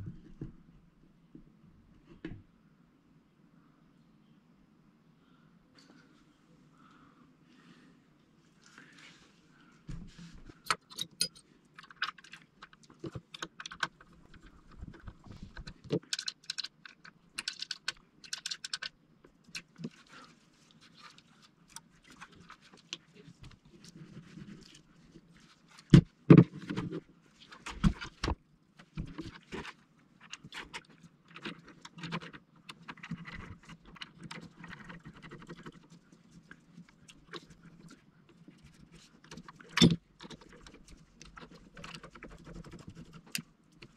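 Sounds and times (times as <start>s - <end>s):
parts and tools clicking and clinking: 10.6s - 14.4s, 15.4s - 18.9s, 39.3s - 42.1s.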